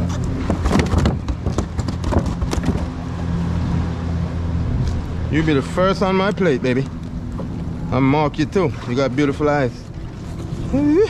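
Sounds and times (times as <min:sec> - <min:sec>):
low engine drone: 0:00.0 - 0:11.0
plastic box clicks and knocks: 0:00.4 - 0:02.9.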